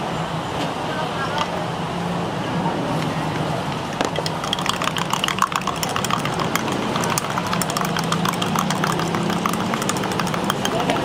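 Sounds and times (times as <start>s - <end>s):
idling engines and traffic hum: 0.0s - 11.0s
spoon clinking against a glass: 4.2s - 11.0s.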